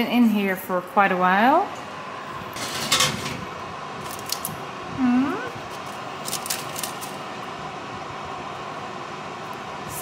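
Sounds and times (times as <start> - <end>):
faint steady hum: 0.0 - 10.0
baking paper rustling: 5.7 - 7.3.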